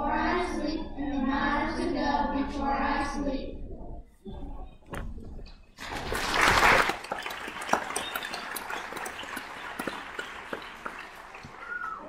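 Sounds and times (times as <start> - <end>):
audience applause: 5.8 - 12.0.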